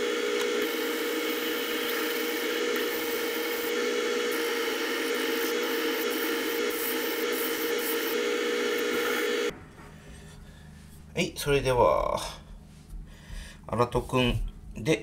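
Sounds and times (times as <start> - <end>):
electric whetstone humming: 0.0 - 9.5.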